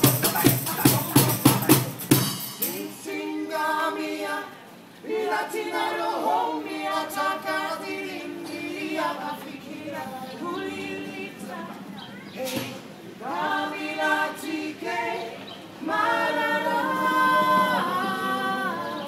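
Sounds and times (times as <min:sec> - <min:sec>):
street band drumming: 0:00.0 - 0:03.0
voices singing unaccompanied: 0:00.0 - 0:19.0.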